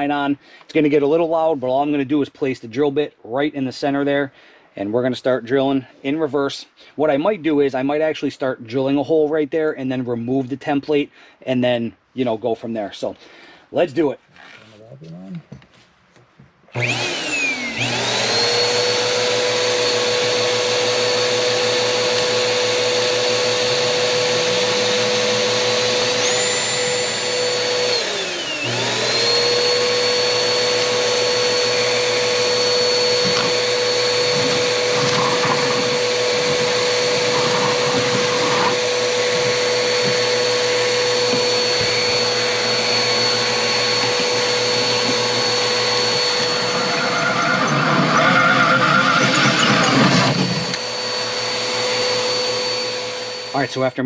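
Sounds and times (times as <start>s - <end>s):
vacuum motor whining: 16.7s - 53.8s
drill cutting through fiberglass: 16.7s - 54.0s.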